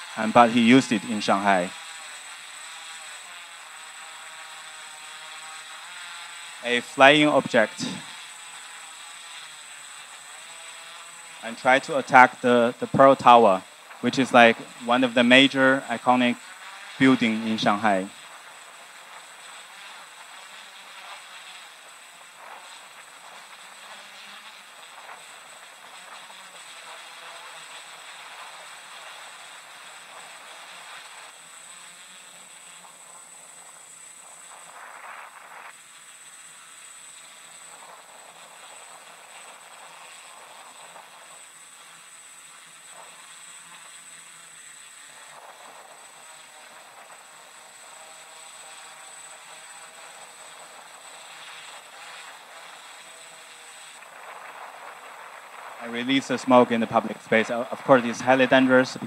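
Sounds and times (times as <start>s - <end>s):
faint high whine: 0.0s - 59.0s
steady hiss: 0.0s - 59.0s
steady rushing noise: 6.6s - 8.1s, 53.9s - 59.0s.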